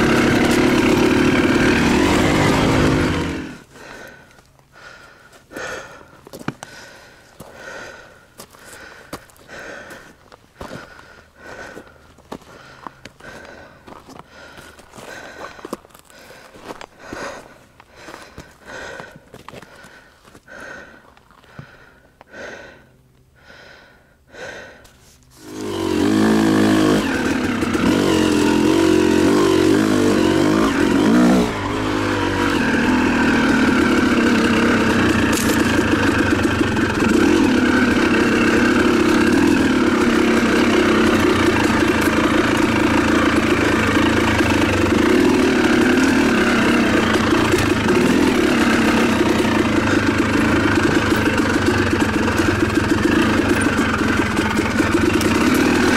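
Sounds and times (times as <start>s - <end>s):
two-stroke motorcycle engine revving: 0.0s - 4.2s, 25.4s - 55.9s
hard rhythmic breathing: 3.1s - 25.5s, 33.9s - 55.9s.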